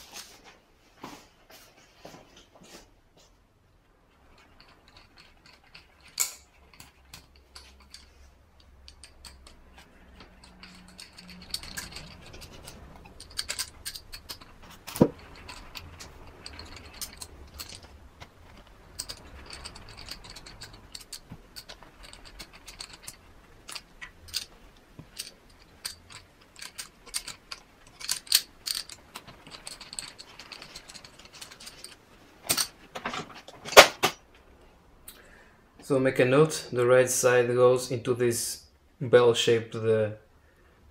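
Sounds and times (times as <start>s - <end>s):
metal parts and tools clinking: 4.1s - 34.3s.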